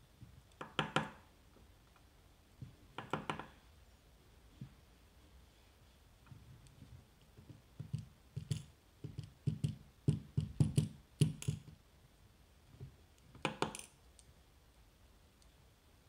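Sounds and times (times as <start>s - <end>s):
tweezers and pins clicking on metal: 7.8s - 9.8s, 10.4s - 11.8s, 13.2s - 14.3s.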